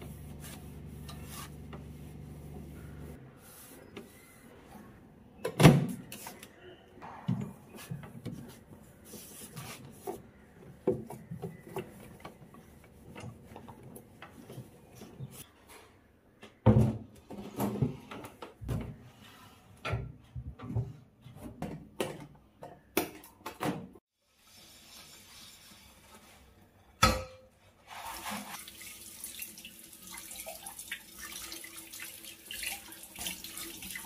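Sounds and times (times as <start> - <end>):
knocks and scraping on cabinet: 19.8 - 22.8.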